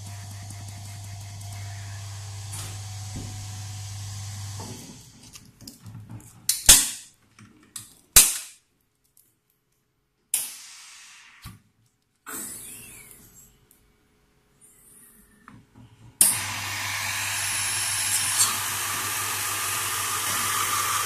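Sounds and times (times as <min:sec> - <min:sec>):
machine humming: 0:00.0 - 0:05.1, 0:16.2 - 0:21.0
loud sharp snaps with hiss: 0:10.3 - 0:11.6.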